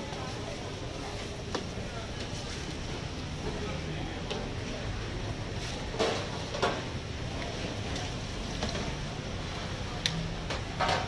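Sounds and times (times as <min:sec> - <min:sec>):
utensils and trays clattering: 0:05.6 - 0:06.9, 0:10.4 - 0:11.0.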